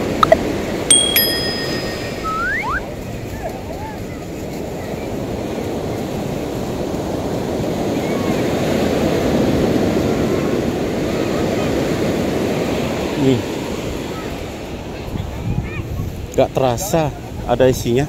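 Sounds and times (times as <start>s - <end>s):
short bright chime: 0.9s - 2.8s.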